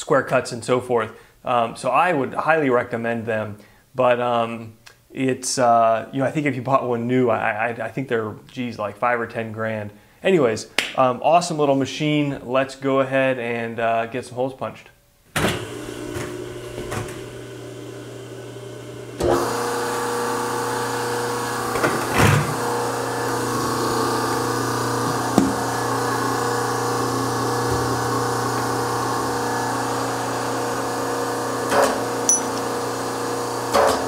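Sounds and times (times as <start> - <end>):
hydraulic motor and pump hum: 15.6 - 34.0.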